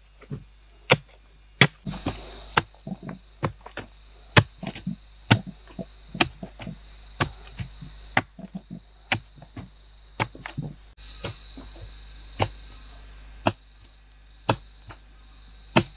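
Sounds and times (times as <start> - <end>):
soil scraping and crumbling: 0.2 - 12.6
pole striking packed earth: 0.3 - 12.6.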